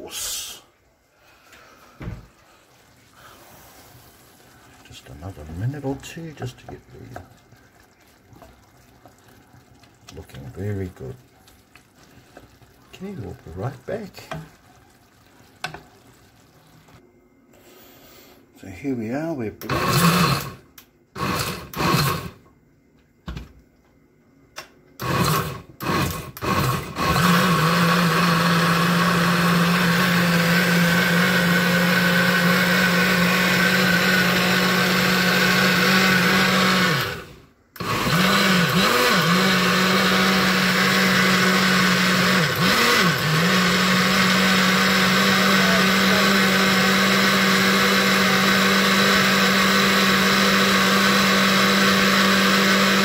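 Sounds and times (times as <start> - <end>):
jug blender motor: 19.6 - 20.6, 21.2 - 22.4, 25.0 - 53.0.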